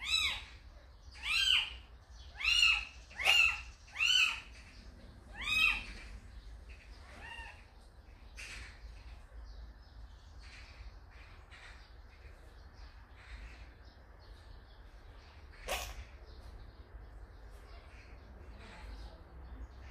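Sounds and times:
kitten mewing: 0:15.7 - 0:16.0.

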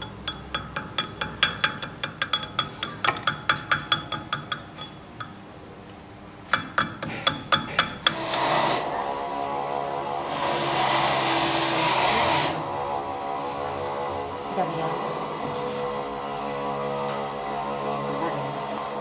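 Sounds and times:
power tool whining: 0:08.0 - 0:19.0.

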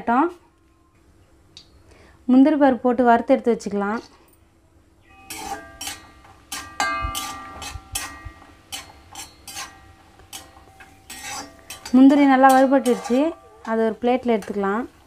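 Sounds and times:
metal spatula clinking on pan: 0:05.2 - 0:14.8.

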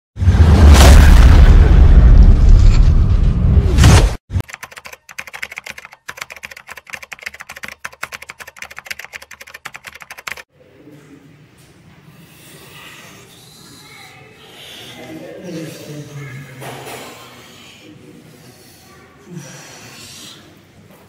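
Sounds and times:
loud boom: 0:00.2 - 0:04.2
keyboard typing clicks: 0:04.4 - 0:10.4.

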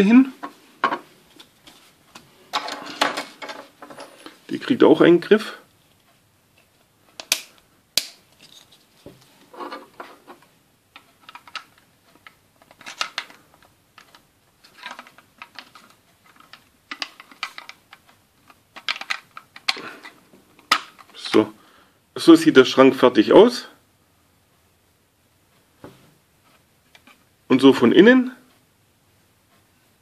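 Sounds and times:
plastic toy parts clicking: 0:11.0 - 0:13.4, 0:14.0 - 0:21.3.

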